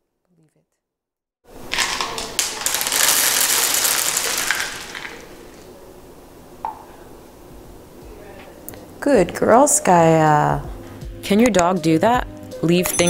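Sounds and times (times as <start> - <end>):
kibble scattering on wooden floor: 1.7 - 5.2.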